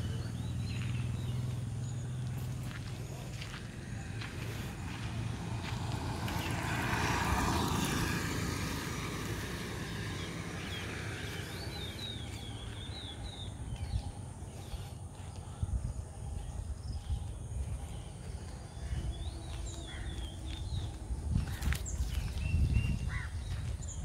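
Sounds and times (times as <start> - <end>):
vehicle passing: 0.0 - 24.0
bird chirping: 9.6 - 24.0.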